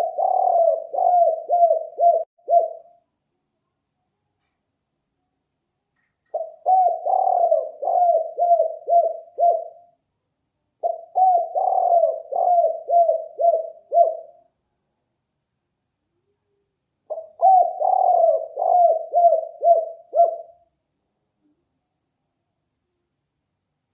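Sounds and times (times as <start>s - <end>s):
dove cooing: 0.0s - 3.0s, 6.3s - 9.9s, 10.8s - 14.4s, 17.1s - 20.6s.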